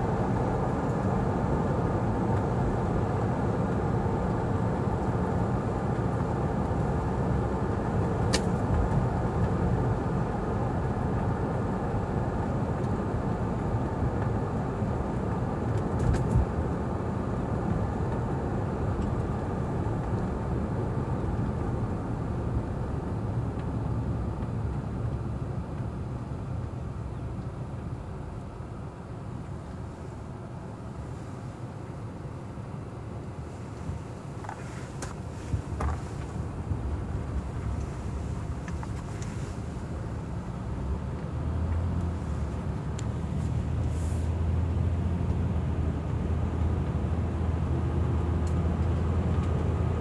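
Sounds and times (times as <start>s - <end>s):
car tyres and engine rumble: 0.0s - 50.0s
sharp click: 8.3s - 8.6s.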